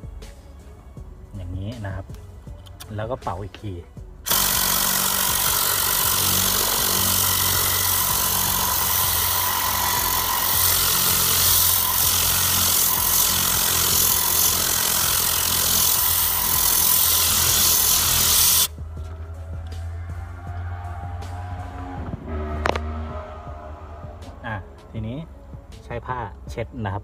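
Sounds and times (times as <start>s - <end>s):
air gun hissing: 4.3s - 18.7s.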